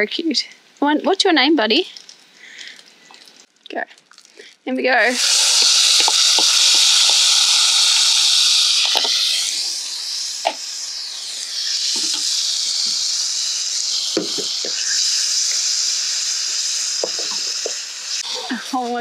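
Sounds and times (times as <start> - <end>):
chicken sizzling in hot oil: 5.0 - 19.0.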